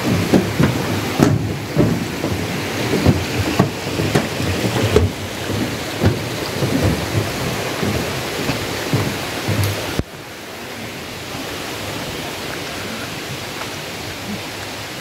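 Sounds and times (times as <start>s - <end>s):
footsteps on dirt trail: 0.0s - 10.1s
steady rushing noise: 0.0s - 15.0s.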